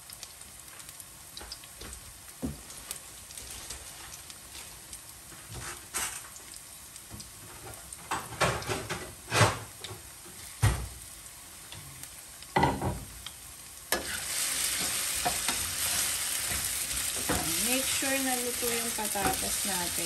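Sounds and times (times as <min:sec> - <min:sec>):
meat and potatoes frying in a pan: 0:00.0 - 0:20.0
utensil scraping a pan: 0:13.9 - 0:19.8.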